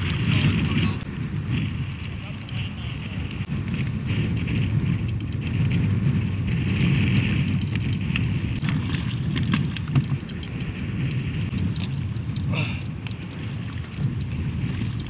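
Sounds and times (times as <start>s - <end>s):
wind on microphone: 0.0s - 15.0s
small clicks and knocks: 2.3s - 2.9s, 6.7s - 15.0s
water slapping against kayak hull: 6.5s - 15.0s.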